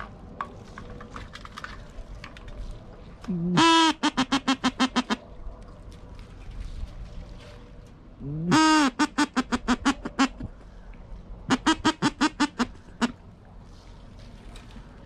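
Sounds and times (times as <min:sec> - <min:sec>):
duck quacking: 0:03.3 - 0:05.2, 0:08.2 - 0:10.5, 0:11.5 - 0:13.2.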